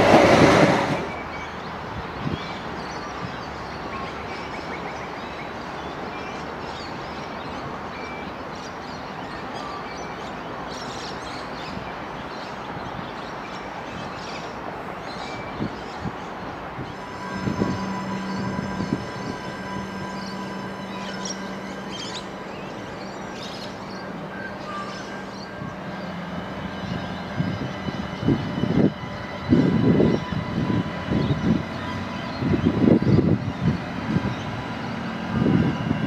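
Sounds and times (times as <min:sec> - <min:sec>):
wheels on rail: 0:00.0 - 0:06.0, 0:13.4 - 0:36.0
diesel railcar engines: 0:00.0 - 0:36.0
steady hum: 0:17.0 - 0:24.6.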